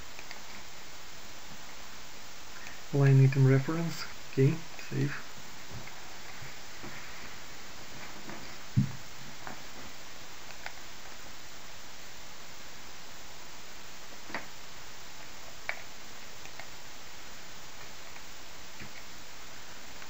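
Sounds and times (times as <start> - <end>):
steady hiss: 0.0 - 20.0
computer mouse clicks: 0.1 - 0.7, 10.4 - 11.2, 15.2 - 16.8, 17.8 - 19.1
low thump: 8.7 - 9.0.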